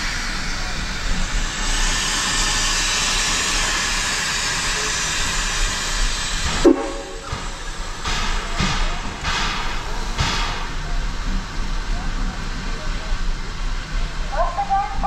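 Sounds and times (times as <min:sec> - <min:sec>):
steam locomotive hissing: 0:00.0 - 0:15.0
loud metallic ringing: 0:06.6 - 0:07.9.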